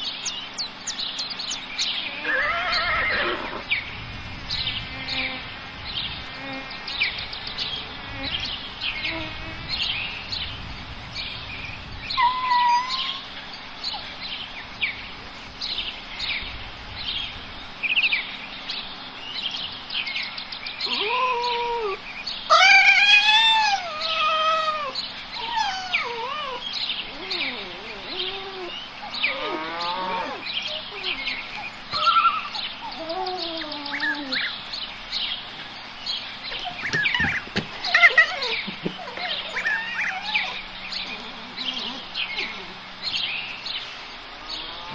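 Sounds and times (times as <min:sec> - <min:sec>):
small birds chirping: 0:00.0 - 0:44.9
animal calls rising and falling: 0:02.0 - 0:03.7, 0:12.1 - 0:13.4, 0:20.8 - 0:34.5, 0:36.5 - 0:42.8.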